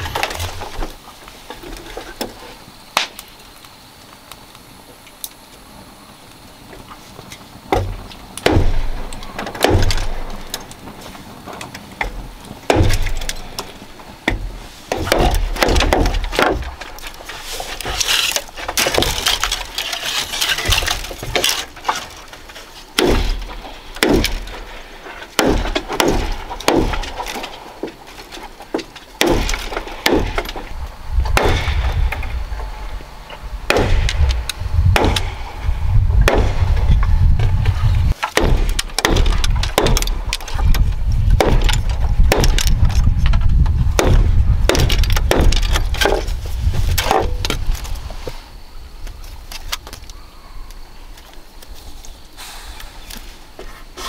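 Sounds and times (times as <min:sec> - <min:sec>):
bamboo strips rustling: 0:00.0 - 0:35.1, 0:36.7 - 0:54.0
blade chopping bamboo: 0:07.7 - 0:10.6, 0:12.0 - 0:13.5, 0:14.3 - 0:22.2, 0:23.0 - 0:24.5, 0:25.4 - 0:28.1, 0:28.8 - 0:30.7, 0:31.3 - 0:32.0, 0:33.7 - 0:34.2, 0:38.1 - 0:40.6, 0:41.3 - 0:42.9, 0:43.9 - 0:46.3
low rumble: 0:29.4 - 0:47.7.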